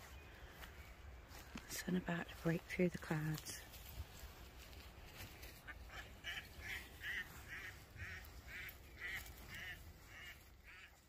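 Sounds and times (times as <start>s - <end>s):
duck quacking: 5.7s - 11.0s.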